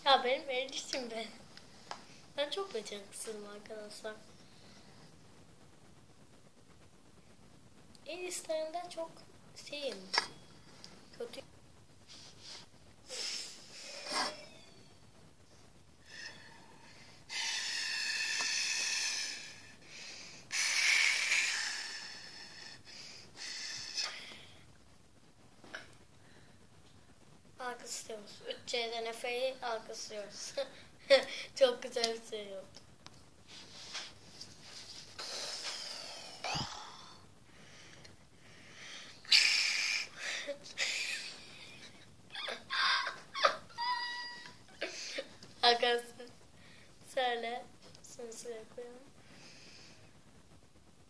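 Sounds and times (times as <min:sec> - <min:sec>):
breath blowing through a straw: 0:12.1 - 0:14.4, 0:16.0 - 0:24.3.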